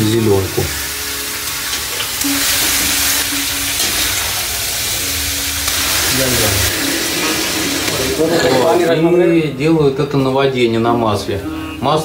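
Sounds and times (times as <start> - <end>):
vegetables sizzling in a pan: 0.0 - 9.0.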